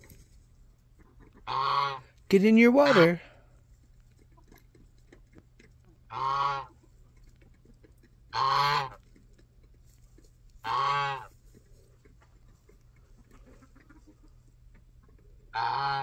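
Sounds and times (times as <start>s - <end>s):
goose honking: 1.4s - 3.3s, 6.1s - 6.7s, 8.3s - 9.0s, 10.6s - 11.3s, 15.5s - 16.0s.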